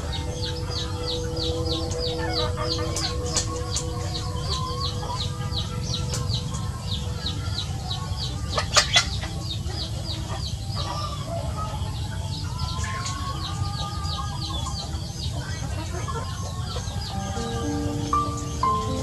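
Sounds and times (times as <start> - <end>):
chickens clucking: 0.0 - 19.0
chicks peeping: 0.0 - 19.0.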